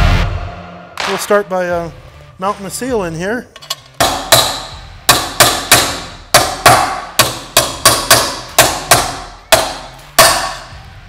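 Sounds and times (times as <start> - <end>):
small hammer striking metal: 3.6 - 10.7.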